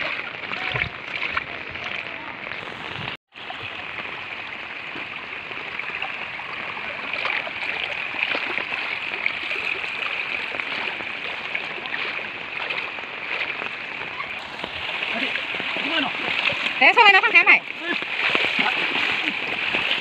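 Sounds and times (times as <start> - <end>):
floodwater rushing and gurgling: 0.0 - 20.0.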